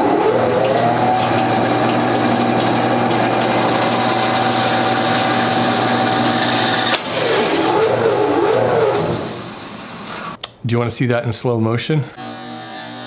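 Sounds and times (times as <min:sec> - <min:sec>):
bandsaw cutting wood: 0:00.0 - 0:10.4, 0:12.2 - 0:13.0
sharp crack: 0:06.8 - 0:07.3.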